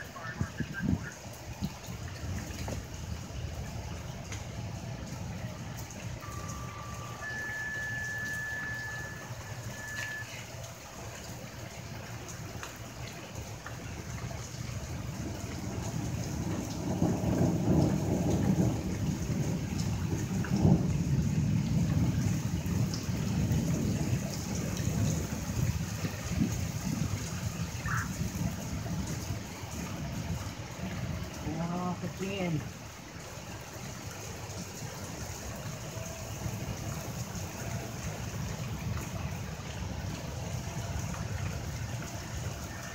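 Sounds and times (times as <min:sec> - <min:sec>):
low thunder rumbling: 0:00.0 - 0:11.8, 0:13.3 - 0:33.2, 0:34.0 - 0:42.9
steady rain: 0:00.0 - 0:42.9
wind: 0:00.0 - 0:42.9
two-tone pager tones: 0:06.2 - 0:10.5.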